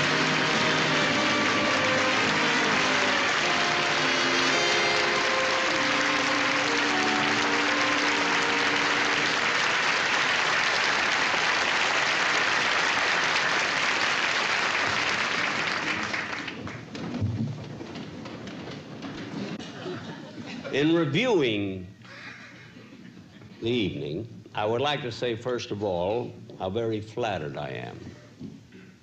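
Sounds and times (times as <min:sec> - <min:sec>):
music playing: 0:00.0 - 0:10.3
crowd clapping: 0:00.0 - 0:17.1.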